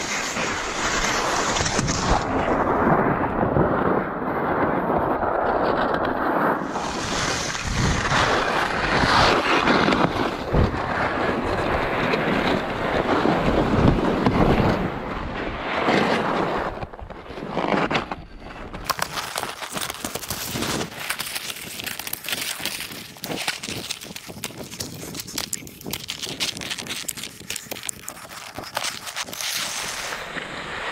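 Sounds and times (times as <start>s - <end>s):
snow crunching: 0.0s - 2.2s, 6.6s - 14.8s, 18.8s - 30.9s
skis sliding over snow: 0.0s - 3.2s, 4.6s - 30.9s
wind buffeting microphone: 0.4s - 17.6s, 18.2s - 30.9s
ski gear clicks: 18.8s - 30.2s.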